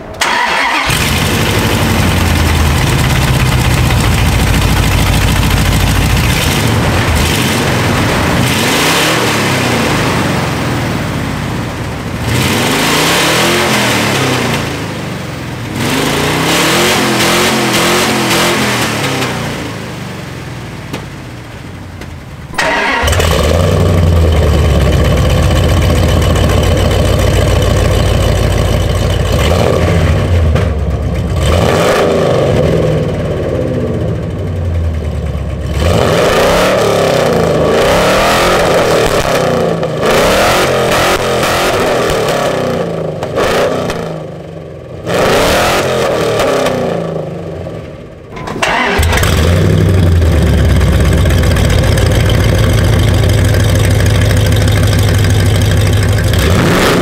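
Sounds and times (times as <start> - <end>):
truck engine idling and revving: 0.0 - 57.0.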